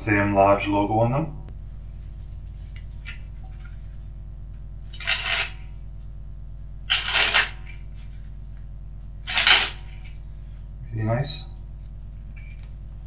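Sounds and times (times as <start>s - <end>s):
playing cards riffling: 4.9s - 5.7s, 6.9s - 8.2s, 9.3s - 10.2s.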